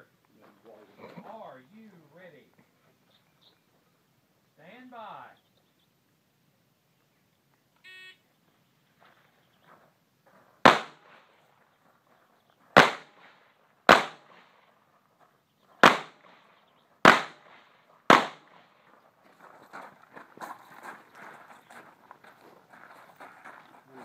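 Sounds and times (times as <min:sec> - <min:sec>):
rifle shots: 0:10.6 - 0:11.4, 0:12.8 - 0:14.6, 0:15.8 - 0:18.7.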